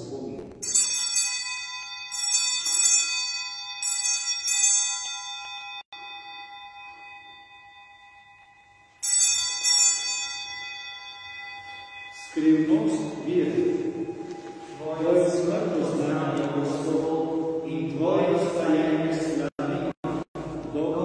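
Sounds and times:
small hand bells ringing: 0.6 - 14.7.

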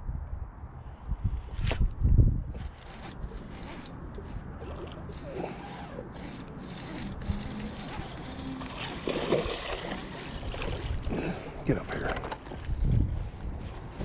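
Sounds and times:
wind buffeting microphone: 0.0 - 14.0
rustling and handling clicks: 2.5 - 10.5.

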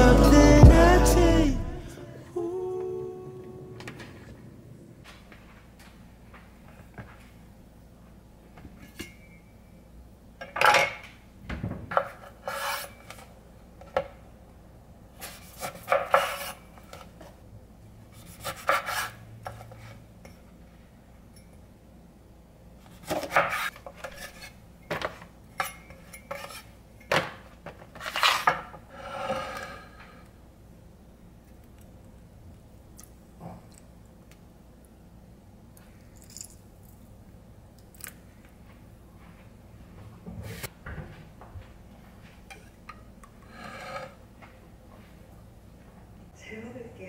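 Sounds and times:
knife slicing scrapes: 12.2 - 13.2, 15.2 - 16.6, 18.2 - 19.9, 23.0 - 24.6.

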